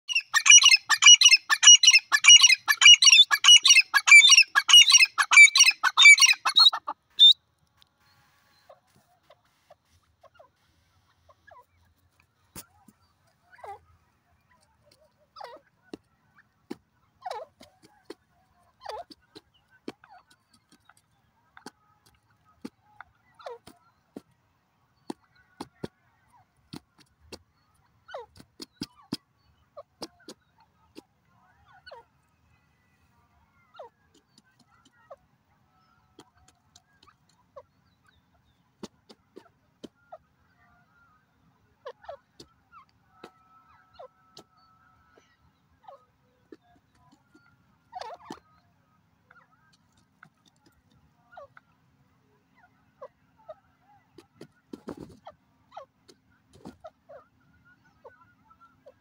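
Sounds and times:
francolin calling: 0.1s - 7.4s
bird bill tapping ground: 14.5s - 24.4s, 25.0s - 31.1s, 34.1s - 35.2s, 36.1s - 40.0s, 46.4s - 48.6s, 49.3s - 51.1s, 54.2s - 55.3s.

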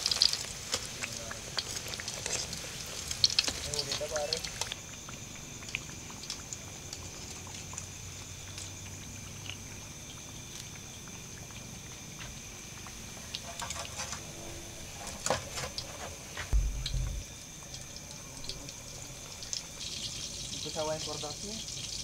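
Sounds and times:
food deep-frying in oil: 0.0s - 22.0s
low thump: 16.5s - 17.3s.

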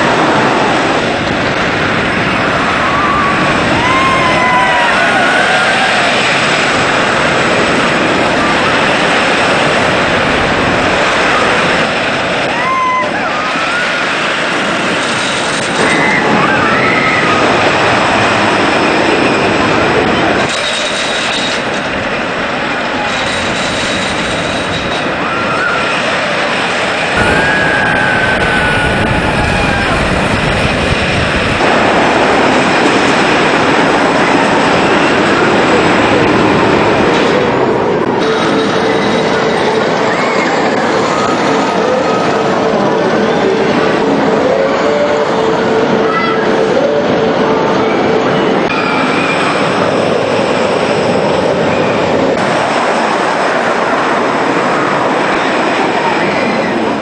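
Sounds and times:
roller coaster train rumbling: 0.0s - 57.0s
riders screaming: 2.3s - 9.8s, 10.9s - 20.6s, 24.9s - 31.7s.

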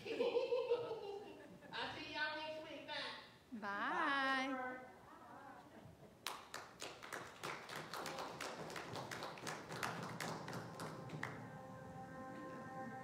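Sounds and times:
audience applause: 6.3s - 11.6s.

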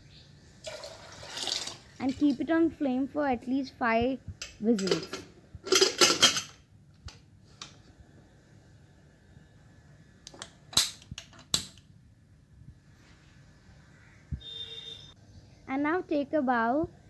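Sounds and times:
metal pot clattering: 4.8s - 6.6s.

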